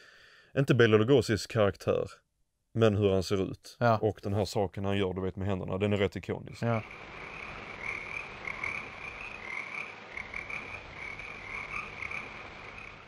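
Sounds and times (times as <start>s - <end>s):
frogs croaking: 6.7s - 13.0s.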